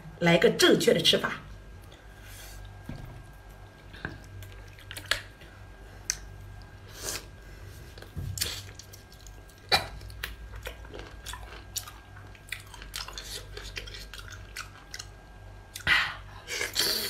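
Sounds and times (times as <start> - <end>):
person chewing wetly: 2.6 - 7.3, 7.9 - 15.9.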